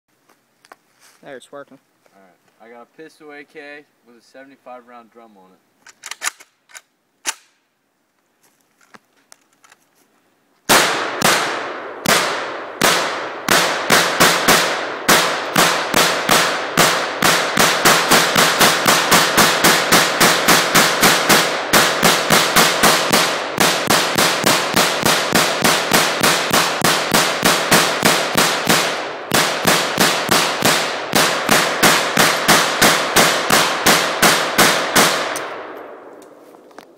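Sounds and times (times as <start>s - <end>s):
rapid pistol fire: 10.7s - 35.8s
pistol gunshots: 10.7s - 36.0s.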